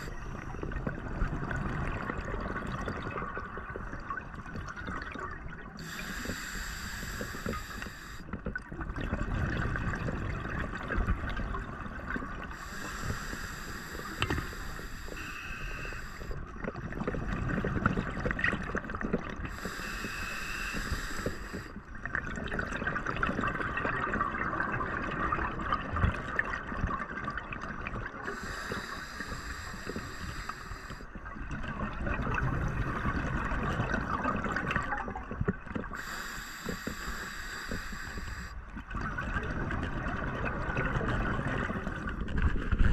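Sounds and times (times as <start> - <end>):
exhaled bubbles burbling: 0.0 - 6.1, 8.3 - 12.7, 15.5 - 19.8, 21.6 - 28.7, 31.1 - 36.1, 38.7 - 42.9
hissing regulator inhales: 5.8 - 8.3, 12.5 - 16.5, 19.5 - 21.8, 28.2 - 31.2, 36.0 - 38.6.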